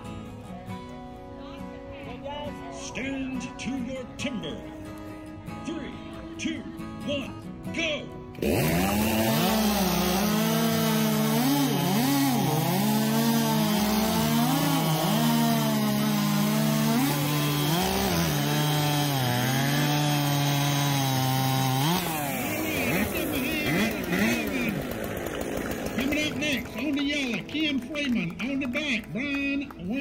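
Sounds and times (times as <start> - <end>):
chainsaw cutting log: 8.4 - 29.4.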